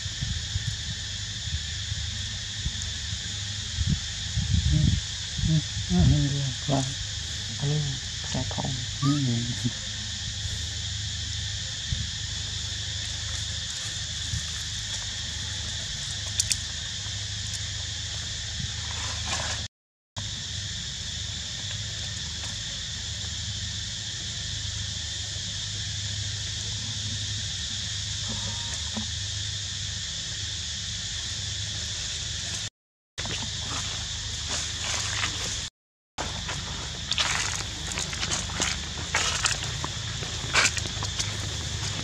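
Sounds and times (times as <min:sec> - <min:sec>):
forest insects droning: 0:00.0 - 0:42.0
short high calls: 0:09.0 - 0:09.7.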